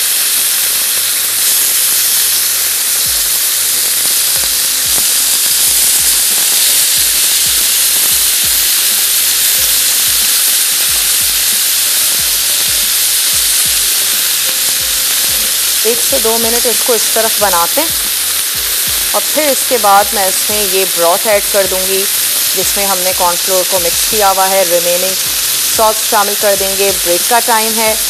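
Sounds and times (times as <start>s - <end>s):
chicken sizzling on grill pan: 0.0s - 28.0s.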